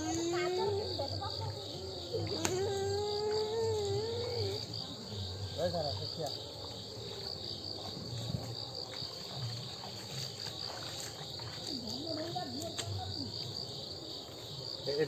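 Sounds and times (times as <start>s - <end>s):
faint voices: 0.0s - 7.4s
insects chirring: 0.0s - 15.0s.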